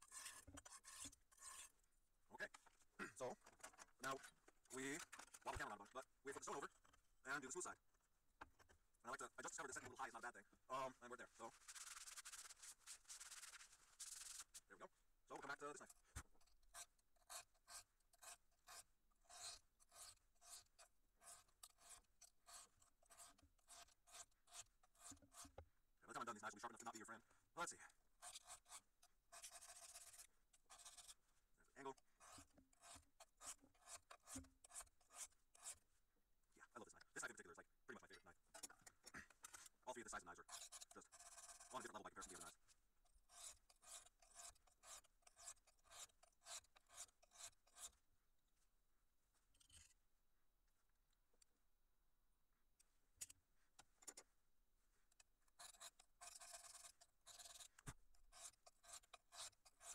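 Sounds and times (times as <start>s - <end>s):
knife scraping on sharpening stone: 0.0s - 1.7s, 16.7s - 25.5s, 32.2s - 35.8s, 40.4s - 42.6s, 43.3s - 48.0s, 55.6s - 59.9s.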